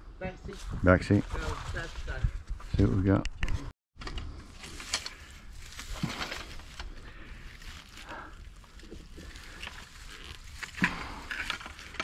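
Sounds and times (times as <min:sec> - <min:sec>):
fabric and pine straw rustling: 0:00.5 - 0:02.3, 0:04.4 - 0:12.0.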